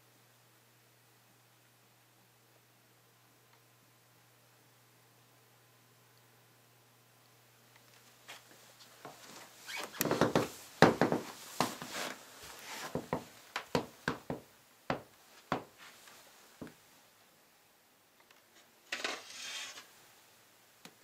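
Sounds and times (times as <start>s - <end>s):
handling cardboard box knocks: 10.2s - 11.8s.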